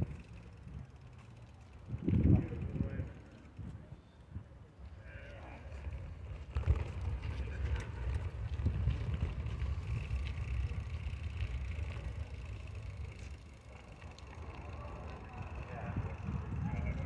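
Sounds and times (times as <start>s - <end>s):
wind buffeting microphone: 1.8s - 4.6s, 5.8s - 13.2s, 14.8s - 17.0s
motorbike engine rumbling: 5.9s - 17.0s.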